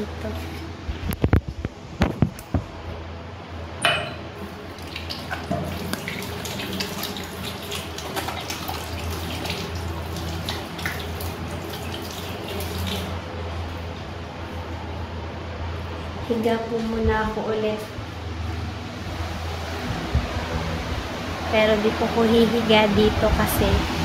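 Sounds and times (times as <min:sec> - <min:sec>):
tap water running and splashing: 0:04.6 - 0:14.0.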